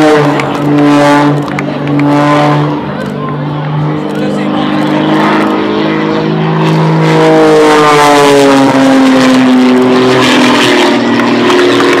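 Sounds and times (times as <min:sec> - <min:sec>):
propeller plane flying past: 0:00.0 - 0:12.0.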